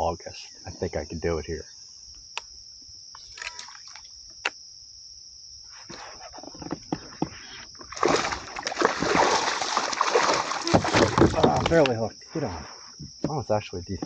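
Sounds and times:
crickets chirping: 0.0s - 14.0s
fish splashing at surface: 7.9s - 11.7s.

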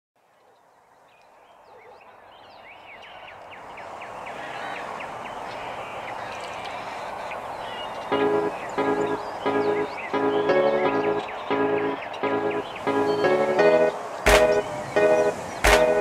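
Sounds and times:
birds chirping: 0.4s - 16.0s
steady background noise: 3.4s - 16.0s.

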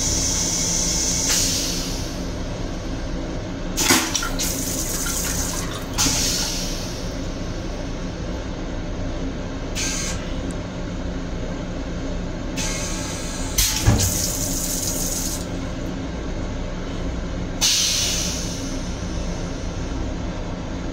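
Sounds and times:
low hum of moving train: 0.0s - 20.9s
toilet flush hissing sprays: 3.8s - 7.0s, 12.6s - 15.5s.

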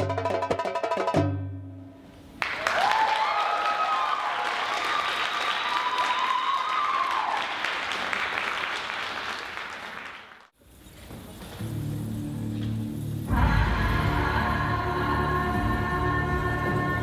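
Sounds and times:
high held whoops: 2.4s - 7.7s
audience applauding and cheering: 2.4s - 10.5s.

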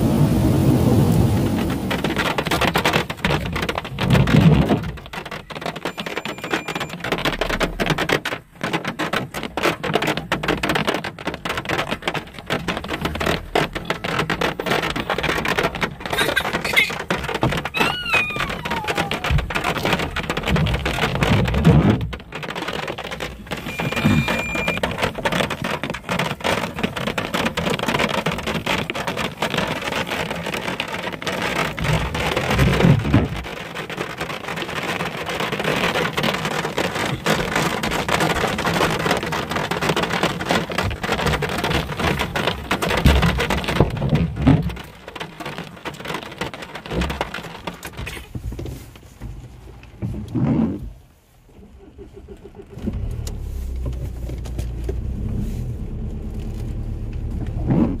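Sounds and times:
low rumbles: 0.0s - 5.3s, 49.3s - 58.0s
heavy rain on car windscreen: 0.0s - 58.0s.

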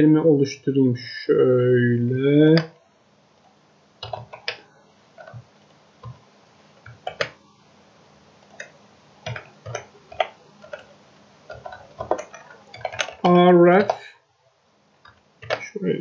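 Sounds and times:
keyboard keys clicking: 4.0s - 6.2s, 6.8s - 7.4s, 8.4s - 10.9s, 11.5s - 14.0s, 15.0s - 15.8s.

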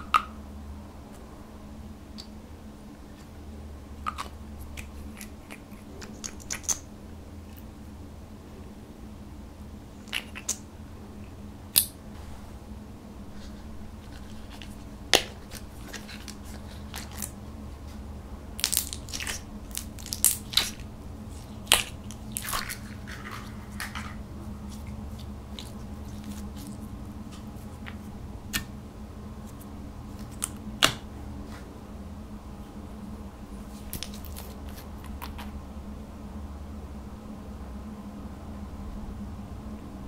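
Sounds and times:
faint low hum: 0.0s - 40.0s
slime crackling and popping: 18.6s - 26.8s.

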